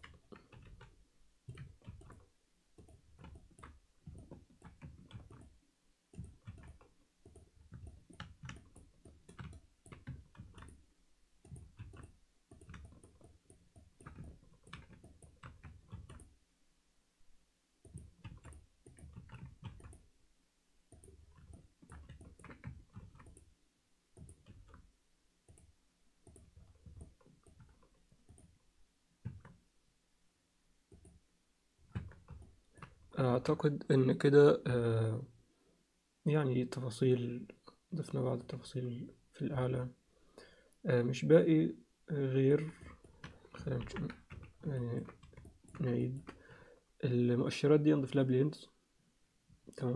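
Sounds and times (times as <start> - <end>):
mouse and keyboard clicks: 0.0 - 10.8, 11.4 - 16.3, 17.8 - 20.1, 20.9 - 23.5, 24.2 - 24.9, 25.5 - 28.5, 31.8 - 33.1, 42.6 - 46.4.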